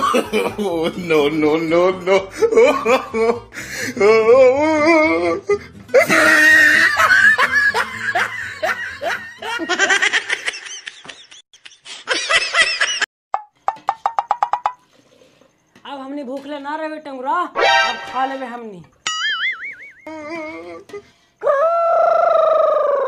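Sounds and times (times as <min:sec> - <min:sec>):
person laughing: 0:00.0 - 0:13.1.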